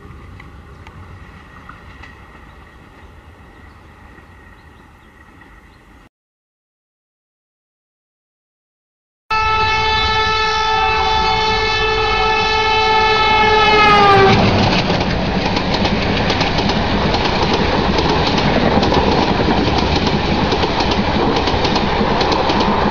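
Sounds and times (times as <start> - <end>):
train horn: 9.3 - 14.6
train wheels clattering on rails: 13.9 - 22.9.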